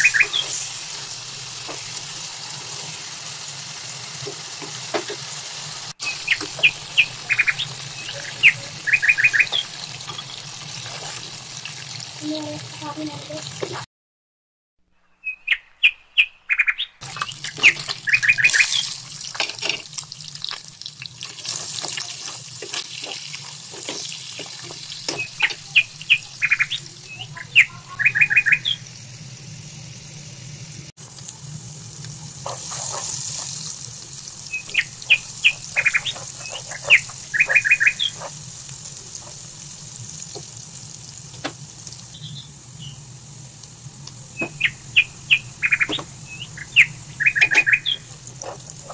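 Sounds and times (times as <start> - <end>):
birds chirping: 0.0 - 2.0, 6.0 - 10.7, 15.0 - 19.1, 23.8 - 29.0, 32.4 - 39.5, 42.0 - 43.2, 44.1 - 48.9.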